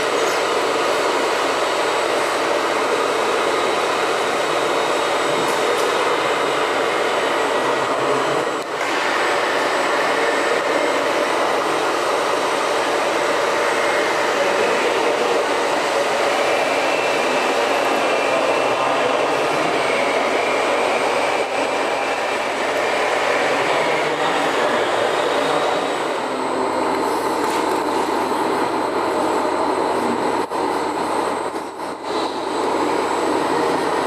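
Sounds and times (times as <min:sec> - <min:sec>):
model excavator machine noise: 0:00.0 - 0:34.0.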